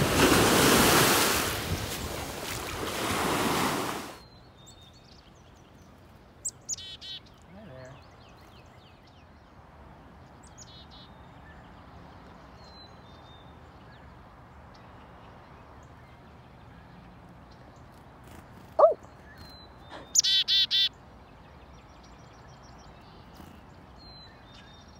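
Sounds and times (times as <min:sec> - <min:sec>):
outdoor background: 0:00.0 - 0:24.9
chickadee call: 0:20.2 - 0:20.9.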